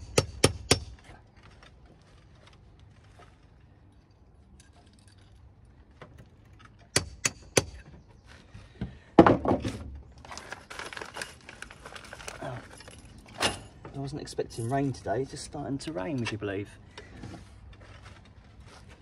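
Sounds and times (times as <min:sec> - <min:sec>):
hammer striking clips into mortar: 0:00.0 - 0:01.0, 0:06.9 - 0:07.8.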